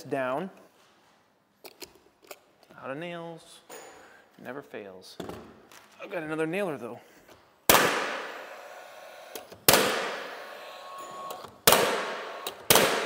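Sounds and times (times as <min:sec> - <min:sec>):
nail gun firing: 0:07.7 - 0:08.6, 0:09.3 - 0:13.0.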